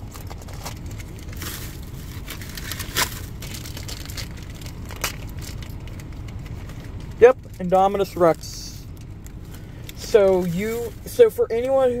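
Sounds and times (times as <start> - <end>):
car interior rumble: 0.0 - 12.0
plastic crackles: 0.0 - 12.0.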